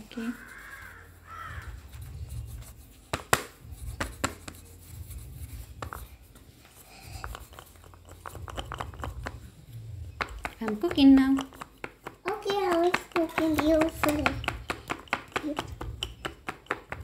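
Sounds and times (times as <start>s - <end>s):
rolling pin rumbling over clay: 7.1s - 17.0s.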